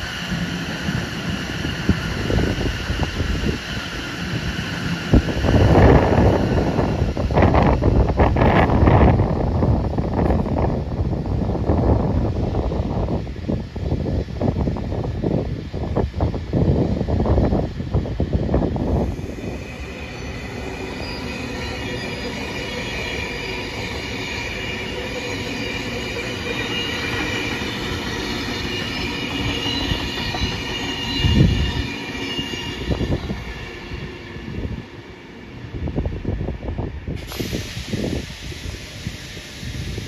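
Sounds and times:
train running gear rumble: 0:00.0 - 0:40.0
train wheels squealing on track: 0:00.0 - 0:40.0
wind gusts on microphone: 0:00.4 - 0:20.0, 0:29.4 - 0:40.0.

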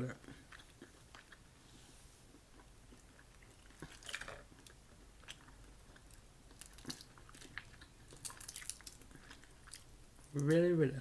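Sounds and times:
faint chewing: 0:00.1 - 0:10.7
crawfish shell cracking: 0:03.5 - 0:10.6.

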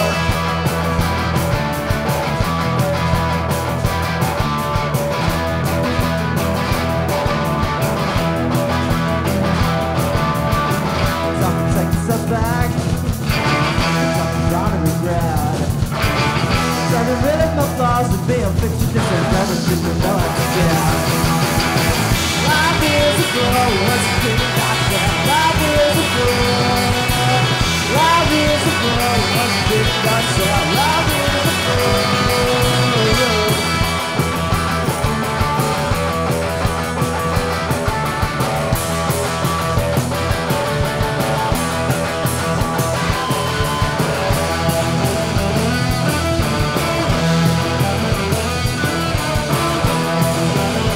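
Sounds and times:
electric guitars: 0:00.0 - 0:50.9
man singing: 0:11.0 - 0:15.8, 0:16.6 - 0:34.0.

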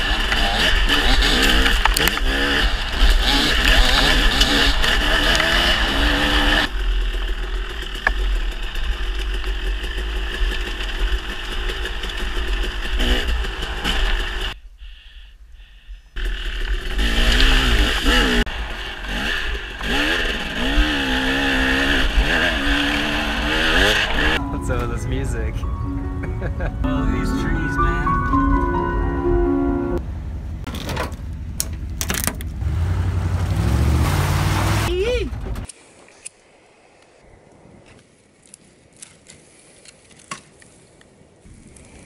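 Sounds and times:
dirt bike engine revving: 0:00.0 - 0:14.6, 0:16.2 - 0:24.4, 0:31.4 - 0:35.7.

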